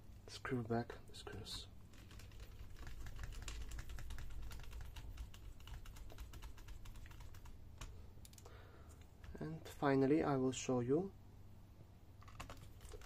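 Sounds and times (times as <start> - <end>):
small clicks and ticks: 1.3 - 9.4.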